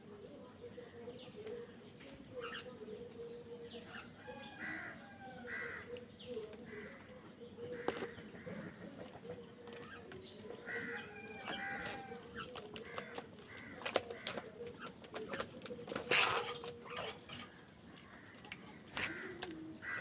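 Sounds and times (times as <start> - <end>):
beaks clicking and tapping: 5.8 - 20.0.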